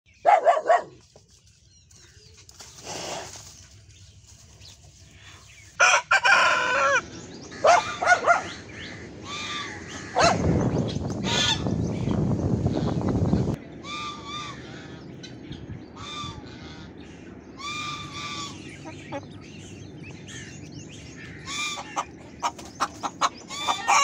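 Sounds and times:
rooster crowing: 5.8 - 8.1.

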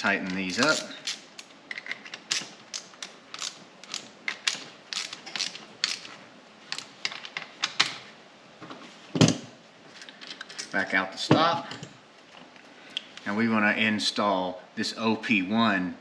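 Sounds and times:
ratchet wrench clicking: 0.3 - 6.1.

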